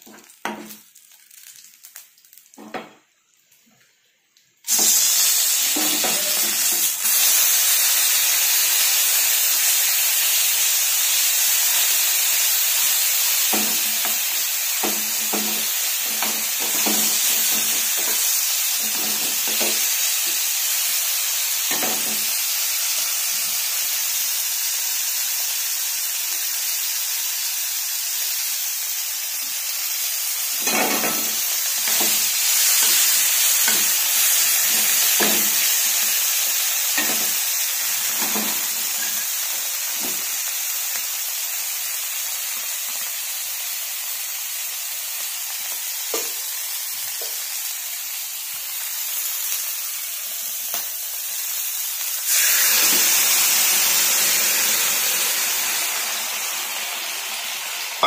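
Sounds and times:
food sizzling in a pan: 0.0 - 58.0
spatula scraping and tapping pan: 14.8 - 19.9.

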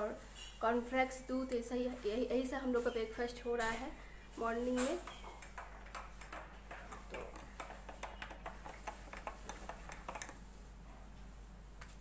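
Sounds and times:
kitchenware clicking and tapping: 3.6 - 10.4.

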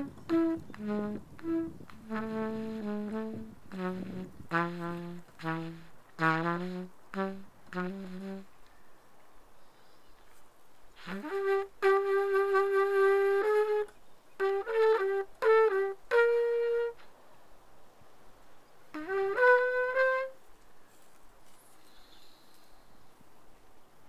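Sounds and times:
wind instrument playing: 0.0 - 8.7, 11.0 - 17.2, 18.9 - 20.5.

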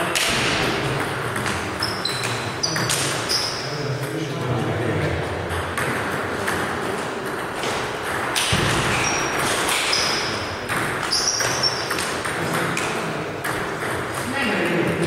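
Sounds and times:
short high squeaks: 1.8 - 3.7, 8.9 - 10.3, 11.0 - 12.0.

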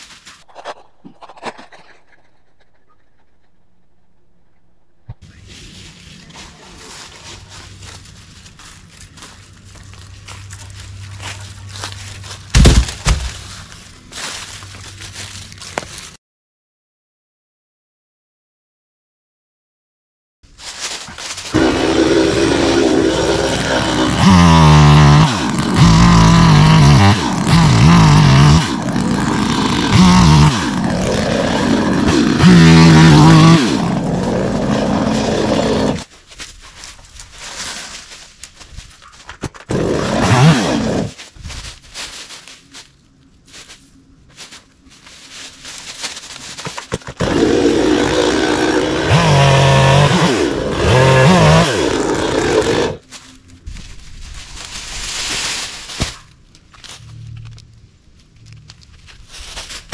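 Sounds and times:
chainsaw revving and cutting wood: 21.5 - 36.1, 39.7 - 41.2, 46.9 - 53.0.

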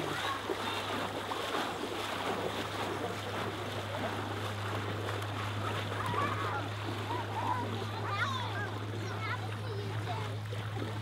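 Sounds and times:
lake water at shore: 0.0 - 11.0
wind: 0.0 - 11.0
distant indistinct voices: 2.8 - 11.0.

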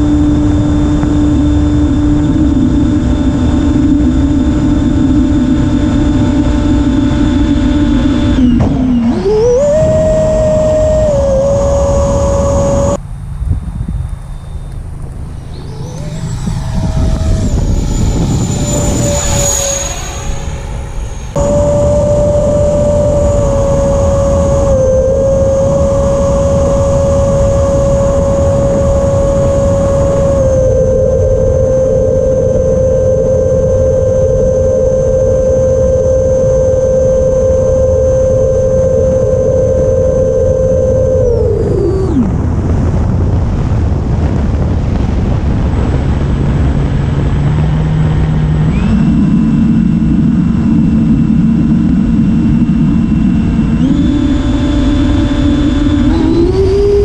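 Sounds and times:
electric ducted fan whining: 0.0 - 57.0
heavy wind rush: 0.0 - 57.0.

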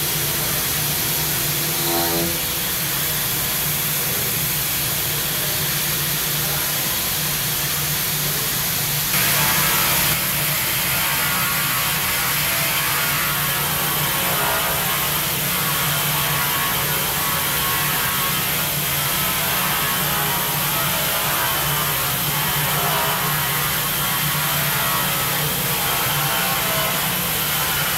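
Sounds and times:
stone milling machine humming: 0.0 - 27.9.

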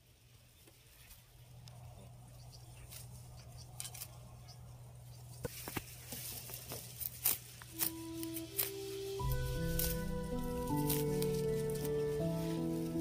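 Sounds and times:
leaves rustling: 0.0 - 13.0
low steady hum: 1.2 - 13.0
sickle cutting stalks: 2.8 - 4.7, 5.3 - 13.0
crisp snips: 5.5 - 12.4.

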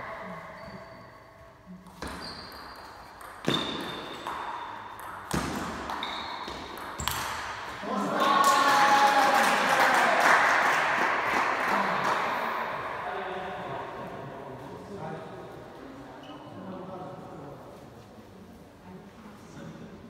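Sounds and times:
crowd noise: 7.7 - 14.7.

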